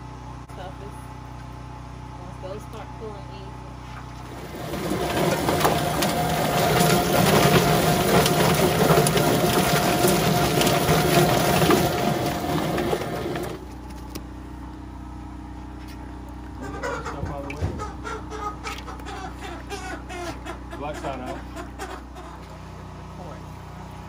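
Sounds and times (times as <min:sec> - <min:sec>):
chicken plucker motor hum: 0:00.0 - 0:24.0.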